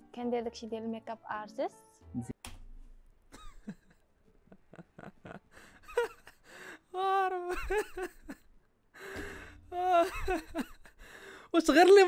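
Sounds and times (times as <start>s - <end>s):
man laughing: 3.3s - 6.4s, 7.4s - 8.5s, 9.8s - 11.0s.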